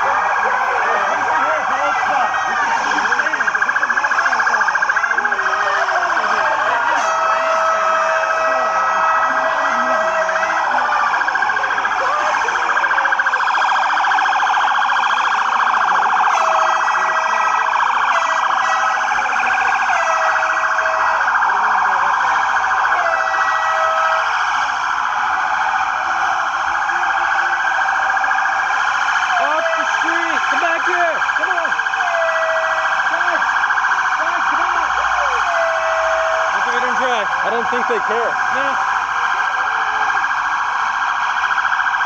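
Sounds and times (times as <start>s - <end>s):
police sirens wailing: 0.0s - 42.0s
steady horn-like tone: 1.2s - 10.9s.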